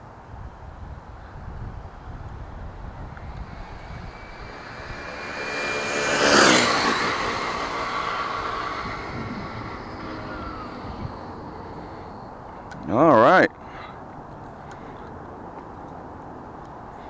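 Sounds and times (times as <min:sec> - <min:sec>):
rc truck drivetrain whine: 0:02.2 - 0:12.4.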